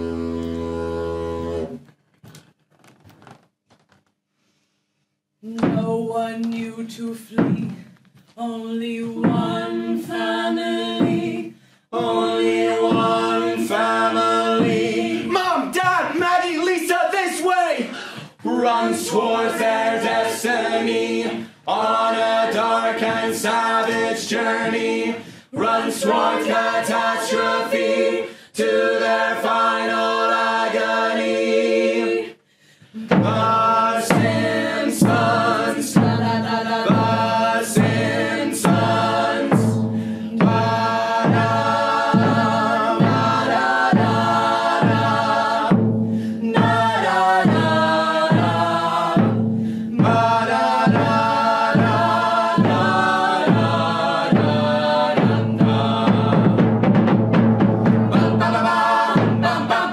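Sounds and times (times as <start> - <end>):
group singing together: 0.0 - 1.8, 8.5 - 16.2, 17.7 - 59.9
steady drum beat: 9.1 - 16.3, 33.0 - 59.9.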